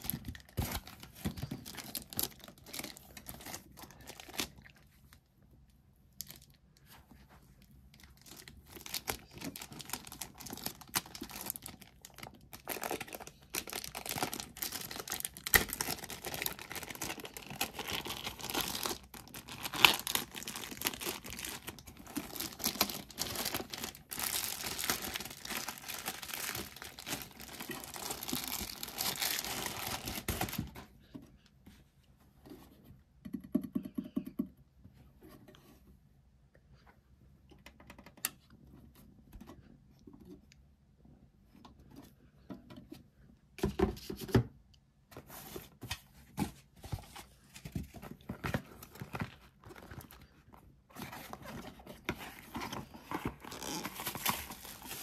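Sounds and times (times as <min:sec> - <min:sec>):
plastic bag crinkling: 0:00.0 - 0:04.8, 0:08.1 - 0:30.7, 0:52.8 - 0:55.0.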